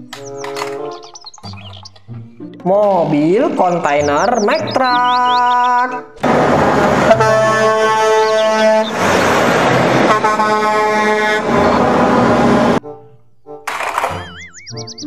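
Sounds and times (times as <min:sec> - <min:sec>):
trucks passing: 0:00.0 - 0:13.0, 0:13.6 - 0:15.0
truck air horn blasts: 0:06.2 - 0:12.8.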